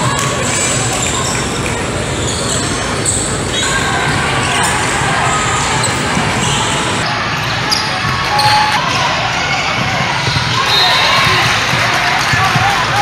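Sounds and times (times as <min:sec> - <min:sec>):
sneaker squeaks: 0:00.0 - 0:07.0.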